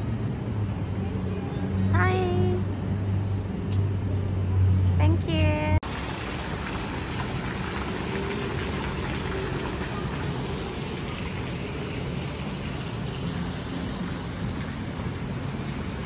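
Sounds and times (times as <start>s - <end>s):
fountain jets splashing into water: 5.8s - 16.0s.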